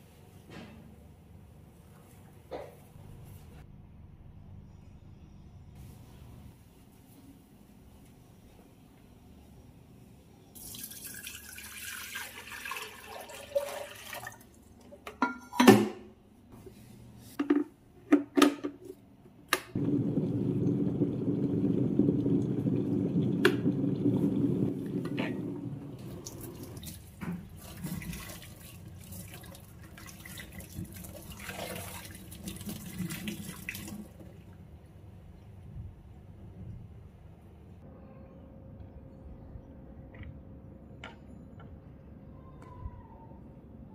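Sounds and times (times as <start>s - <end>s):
electric kettle heating water: 19.8s - 26.8s.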